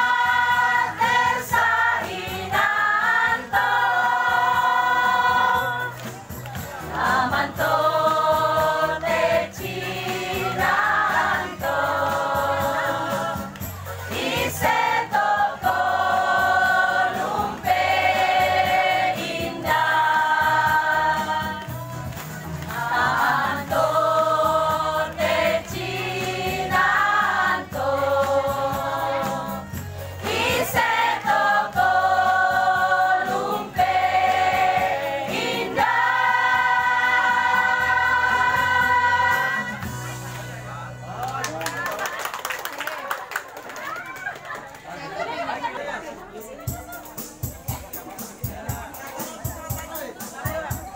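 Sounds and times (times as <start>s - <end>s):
choir singing held notes: 0.0s - 6.0s, 6.8s - 21.8s, 22.6s - 40.2s.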